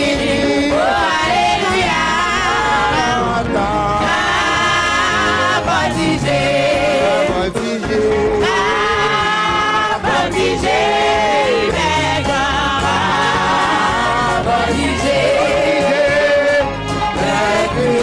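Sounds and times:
brass band and drums: 0:00.0 - 0:18.0
man singing into microphone: 0:02.9 - 0:04.1, 0:06.8 - 0:09.1.

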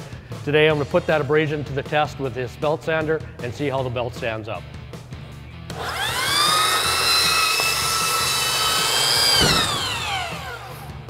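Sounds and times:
belt sander motor whine: 0:05.8 - 0:11.0.

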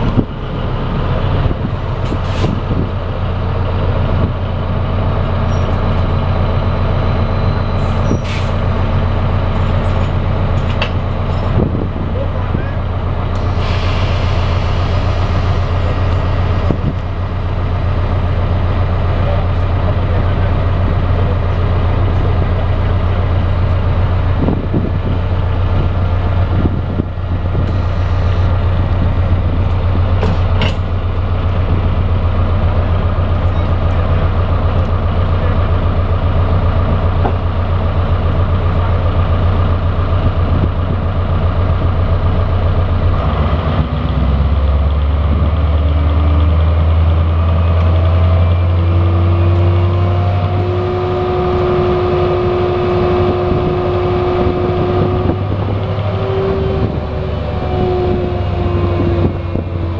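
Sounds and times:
diesel locomotive engine humming: 0:00.0 - 0:59.9
rising whine: 0:23.0 - 0:59.9.

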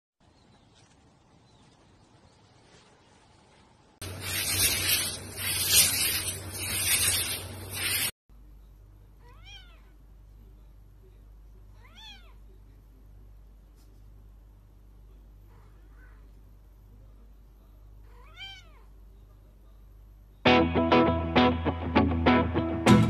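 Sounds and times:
cat meowing: 0:09.2 - 0:10.0, 0:11.8 - 0:12.4, 0:18.1 - 0:18.9.

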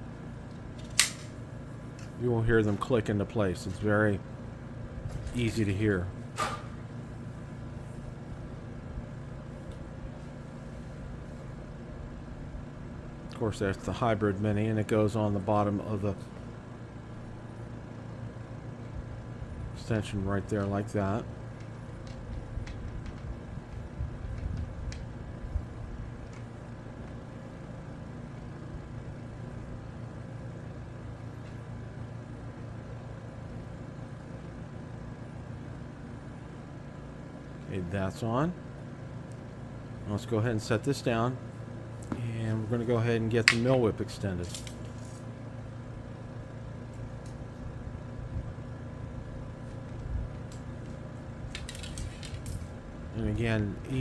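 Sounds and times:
low mechanical hum: 0:00.0 - 0:54.0
antenna sections snapping together: 0:00.8 - 0:01.4.

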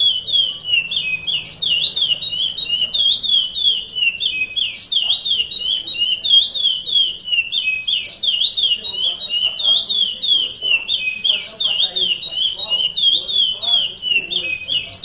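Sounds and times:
finch singing whistled notes: 0:00.0 - 0:15.0.

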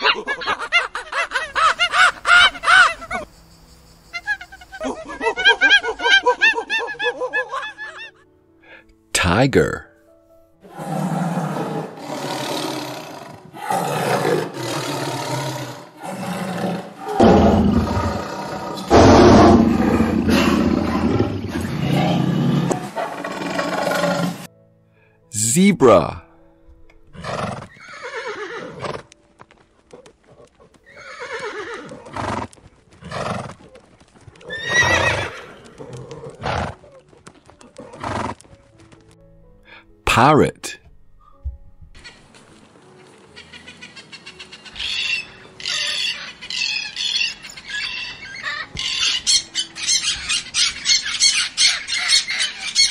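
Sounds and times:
tigers roaring: 0:10.6 - 0:24.5
zebra calling: 0:43.0 - 0:52.9.

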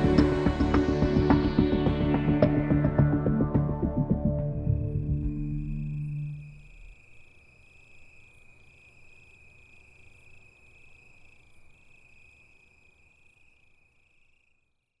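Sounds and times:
pulsing insect chirp: 0:00.1 - 0:15.0
insect trill: 0:04.4 - 0:15.0.

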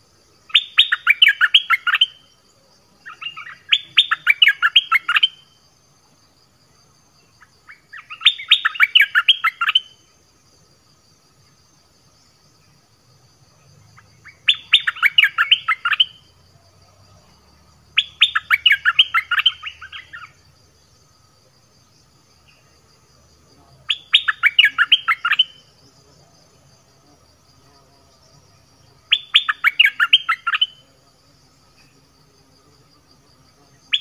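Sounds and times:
bird chattering song: 0:00.5 - 0:02.2, 0:03.0 - 0:05.5, 0:07.4 - 0:10.0, 0:13.9 - 0:16.2, 0:18.0 - 0:20.4, 0:23.9 - 0:25.7, 0:29.1 - 0:30.8.

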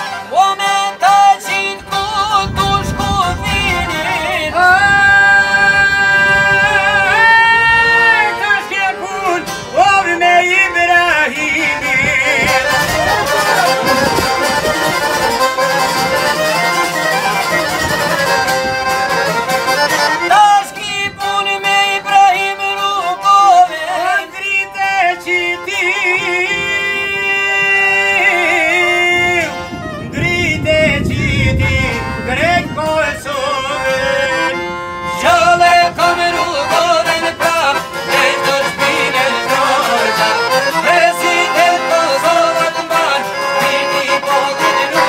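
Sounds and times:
long-necked lute: 0:00.0 - 0:24.2
accordion: 0:00.0 - 0:45.0
violin melody: 0:00.0 - 0:45.0.

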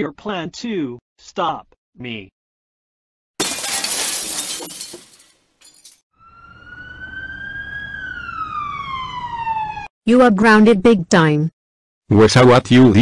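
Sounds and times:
window glass shattering: 0:03.4 - 0:06.0
siren wailing: 0:06.2 - 0:09.9.

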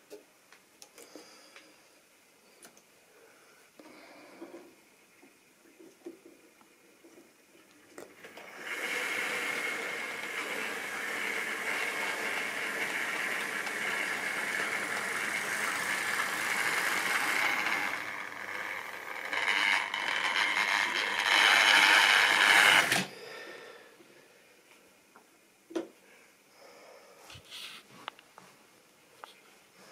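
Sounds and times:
model train motor whining: 0:08.2 - 0:23.1.

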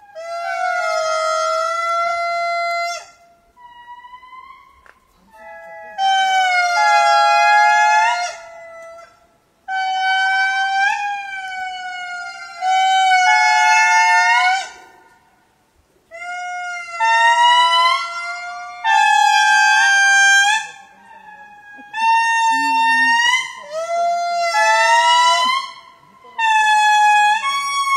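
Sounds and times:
lemurs calling in chorus: 0:16.1 - 0:27.9.

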